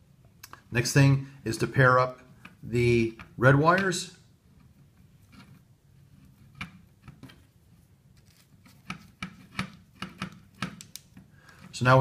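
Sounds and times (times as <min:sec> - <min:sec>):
wires rustling: 0:01.5 - 0:12.0
small sharp clicks: 0:08.9 - 0:11.2.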